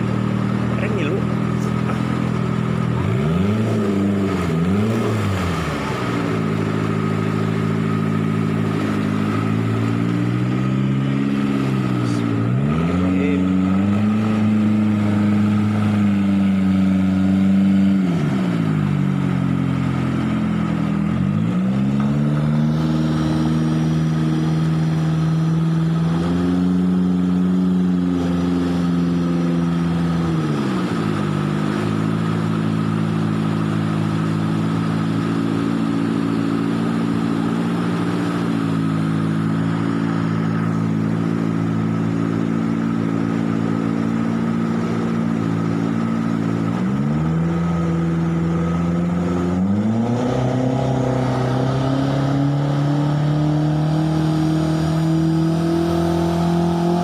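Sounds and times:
boat engine running hard: 0:00.0 - 0:57.0.

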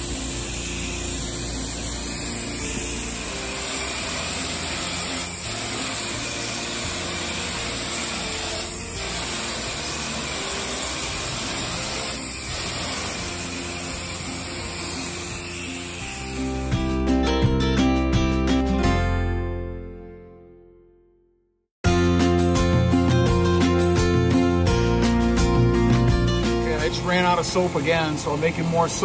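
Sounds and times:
pressure washer spray hissing: 0:00.0 - 0:16.9.

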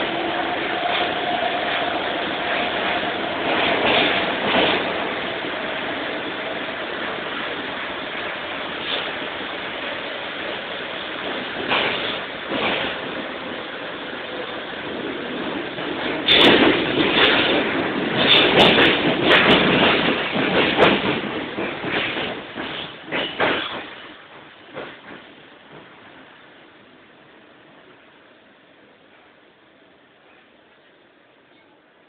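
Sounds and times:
wheels clacking over rail joints: 0:00.0 - 0:05.9, 0:08.6 - 0:13.6, 0:14.3 - 0:25.9
train rumbling through tunnel: 0:00.0 - 0:32.0.

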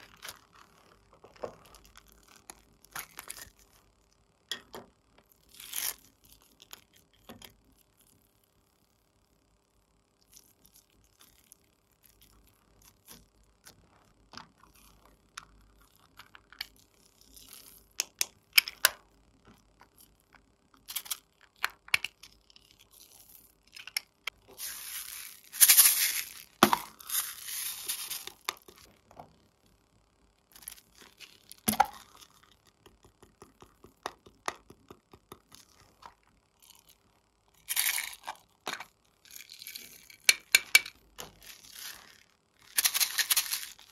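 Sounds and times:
slime crackling as stretched: 0:00.0 - 0:03.9
glitter shaken from plastic tub: 0:24.5 - 0:28.9, 0:41.4 - 0:43.9.

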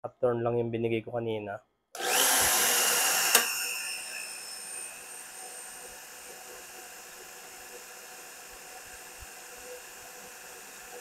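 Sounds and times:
drill press whining: 0:02.0 - 0:11.0
sharp click: 0:03.3 - 0:03.6.

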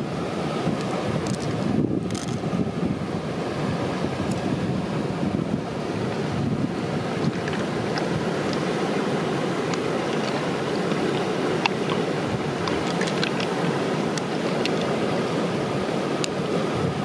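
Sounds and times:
stream water flowing over rocks: 0:00.0 - 0:17.0
wet clicks and ticks: 0:09.7 - 0:12.0, 0:12.6 - 0:14.9.

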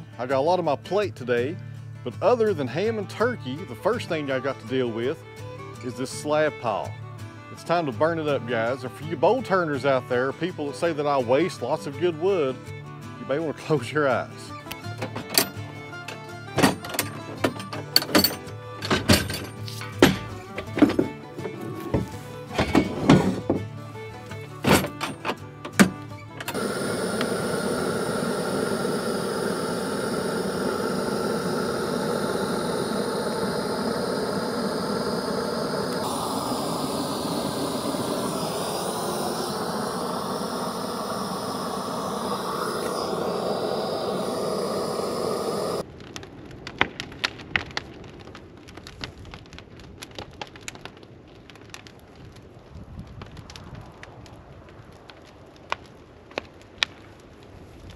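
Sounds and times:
propane torch burning: 0:14.6 - 0:46.1
wood fire crackling and popping: 0:25.9 - 0:57.9.

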